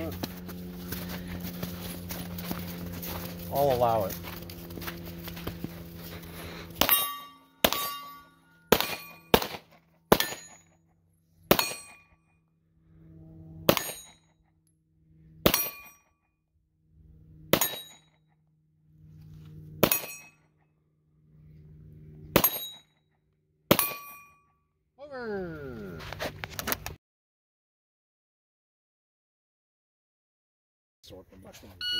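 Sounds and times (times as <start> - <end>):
gunshots: 6.8 - 10.6, 11.5 - 12.0, 13.7 - 14.1
steel target ringing: 6.8 - 10.8, 11.5 - 12.1, 13.7 - 14.3, 15.4 - 16.1, 17.5 - 18.2, 19.8 - 20.4, 22.4 - 22.9, 23.7 - 24.4.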